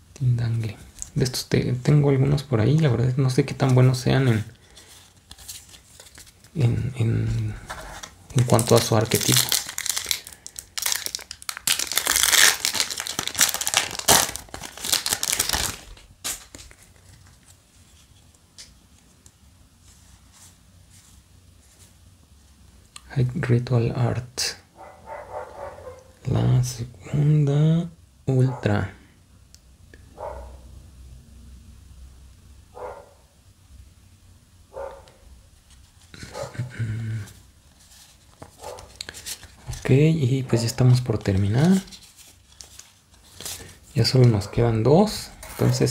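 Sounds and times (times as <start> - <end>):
foil wrapper tearing and crinkling: 8.0 - 17.2, 37.8 - 40.0, 40.9 - 44.1
dog barking: 24.8 - 26.1, 30.2 - 30.6, 32.8 - 33.2, 34.8 - 35.2, 36.3 - 36.6, 38.6 - 38.9.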